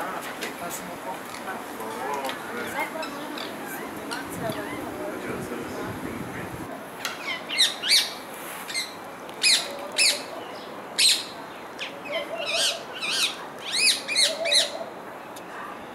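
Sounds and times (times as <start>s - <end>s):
parakeets screeching: 2.4s - 5.1s, 7.2s - 10.3s, 11.0s - 14.8s.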